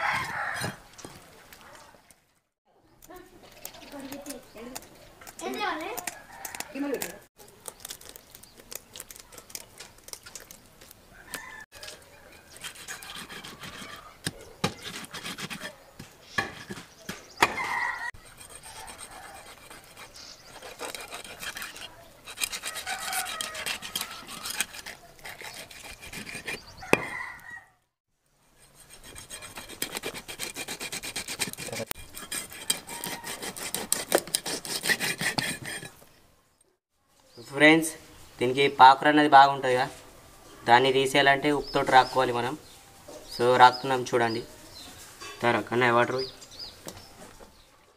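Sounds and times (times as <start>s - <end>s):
scissors scraping fish scales: 3.0s - 14.1s, 18.3s - 26.7s, 28.6s - 35.9s.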